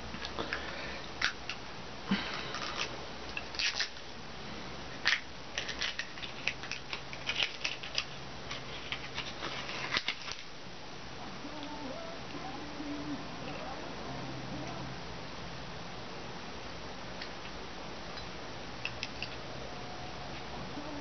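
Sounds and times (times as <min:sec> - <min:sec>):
plastic crinkling and clicking: 0:05.0 - 0:10.5.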